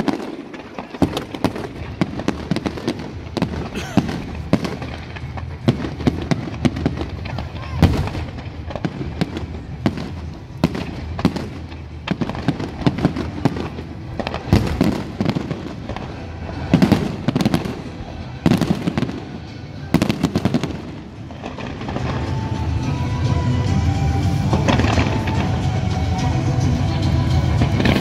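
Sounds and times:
firework crackling: 0:00.0 - 0:28.0.

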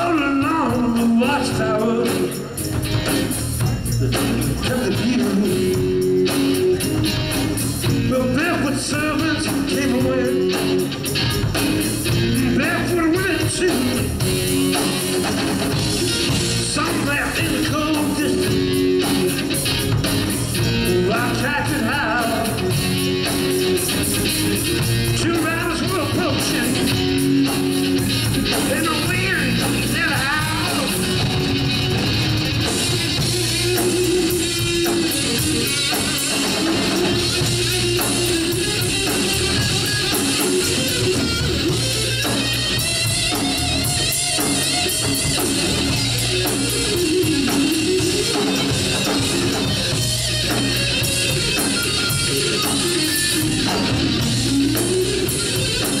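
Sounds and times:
man singing: 0:00.0 - 0:02.6, 0:04.2 - 0:06.1, 0:07.9 - 0:10.9, 0:12.2 - 0:14.2, 0:16.6 - 0:18.8, 0:20.6 - 0:22.9, 0:25.0 - 0:27.1, 0:28.4 - 0:31.3
bass guitar: 0:00.0 - 0:56.0
drums: 0:00.0 - 0:56.0
electric guitar: 0:00.0 - 0:56.0.

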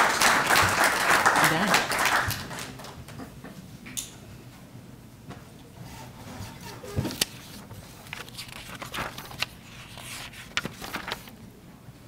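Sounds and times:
low room hum: 0:00.0 - 0:12.0
papers rustling: 0:06.7 - 0:11.4.

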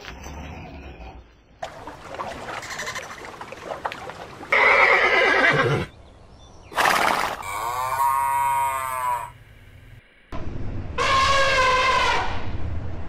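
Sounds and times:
horse neighing: 0:04.5 - 0:05.9
cow mooing: 0:07.5 - 0:09.3.

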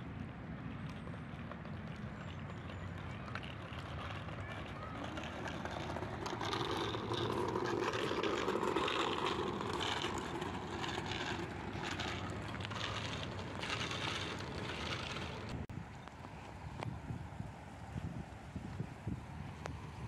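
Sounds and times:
bike wheels crunching on gravel: 0:01.7 - 0:15.7.

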